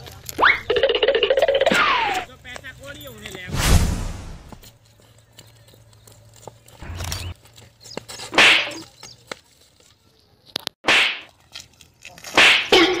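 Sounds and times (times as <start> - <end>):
whip-like swishes: 8.3 - 8.8, 12.3 - 12.7.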